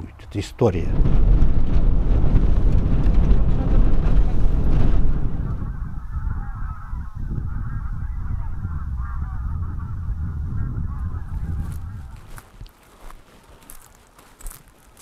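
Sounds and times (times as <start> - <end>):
steady low rumble: 0.8 - 12.4
geese honking: 4.2 - 12.4.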